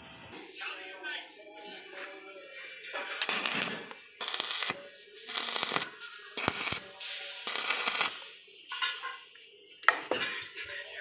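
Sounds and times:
arc welding crackling and hissing: 0:03.2 - 0:08.4.

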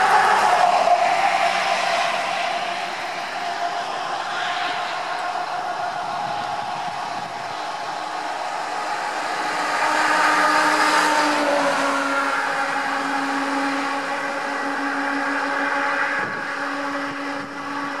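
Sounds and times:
steady droning tone: 0:00.0 - 0:18.0
tow truck passing: 0:00.0 - 0:18.0.

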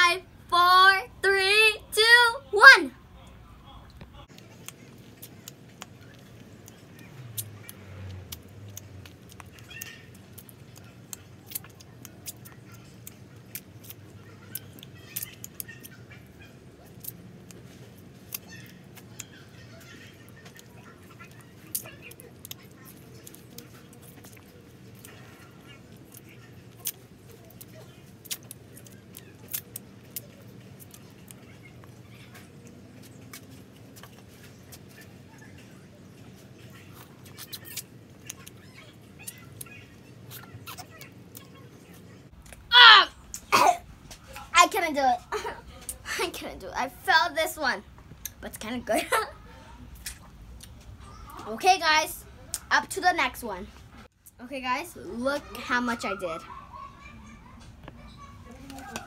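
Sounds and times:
low steady background hum: 0:00.0 - 0:59.0
wet sucking and lip-smacking: 0:04.4 - 0:16.0, 0:20.4 - 0:35.2, 0:36.3 - 0:38.6, 0:39.2 - 0:42.7, 0:49.9 - 0:51.4
wet mouth clicks and smacks: 0:28.2 - 0:31.0, 0:37.2 - 0:38.6, 0:50.0 - 0:50.8.

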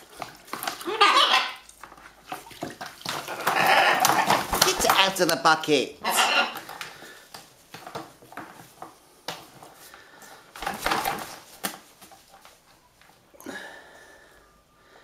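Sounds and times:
bird splashing in water: 0:00.0 - 0:05.1
wet wings flapping: 0:02.8 - 0:05.0.

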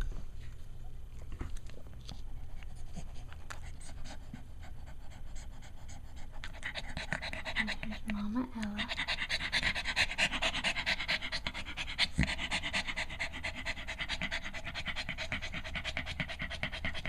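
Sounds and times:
dog panting rapidly: 0:02.5 - 0:17.0.

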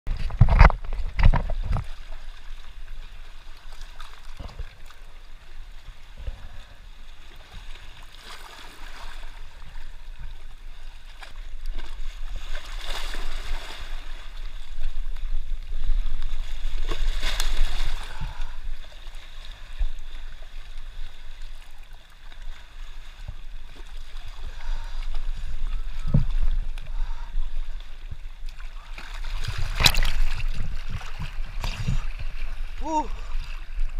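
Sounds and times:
water splashing over rocks: 0:11.0 - 0:33.9.

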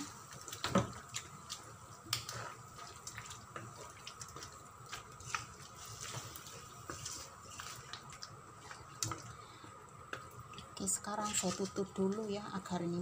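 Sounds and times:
faint steady hum: 0:00.0 - 0:13.0
spatula stirring wet curry: 0:01.0 - 0:09.4.

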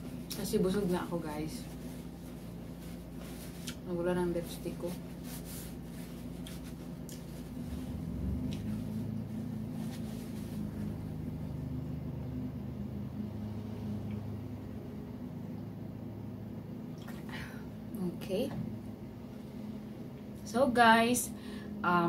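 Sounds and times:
low mechanical hum: 0:00.0 - 0:22.0
paper napkin rustling: 0:00.1 - 0:11.5.

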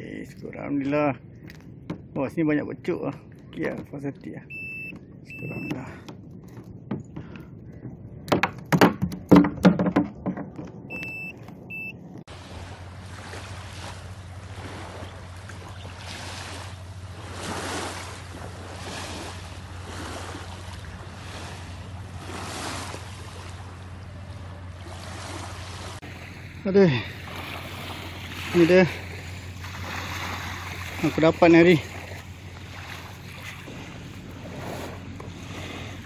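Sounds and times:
short electronic beeps: 0:04.4 - 0:05.8, 0:10.9 - 0:12.0
knocks on plastic kayak deck: 0:06.1 - 0:10.9
low hum: 0:10.4 - 0:36.0
small waves lapping at shore: 0:12.3 - 0:36.0.

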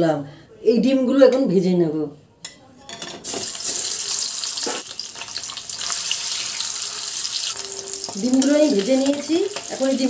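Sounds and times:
eggs sizzling in hot oil: 0:03.2 - 0:10.0.

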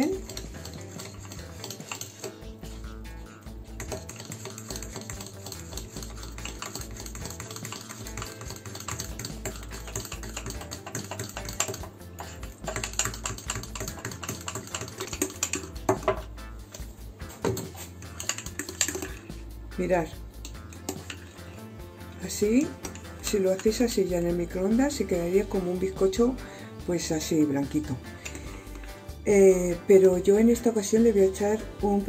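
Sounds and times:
fork beating batter in mug: 0:00.0 - 0:26.2, 0:27.6 - 0:29.0.

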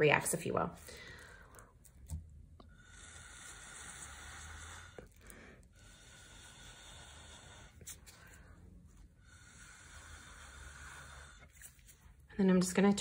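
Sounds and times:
breathy hiss through a straw: 0:02.7 - 0:08.6, 0:09.2 - 0:12.1.

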